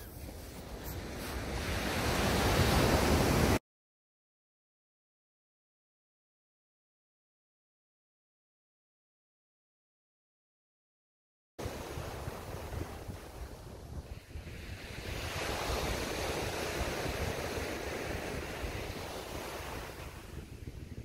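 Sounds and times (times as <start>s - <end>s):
wind buffeting microphone: 11.6s - 21.0s.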